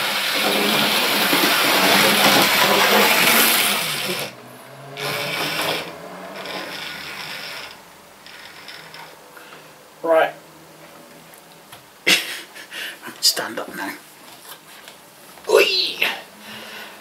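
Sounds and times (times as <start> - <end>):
model locomotive motor whirring: 0.0 - 4.3, 5.0 - 9.2.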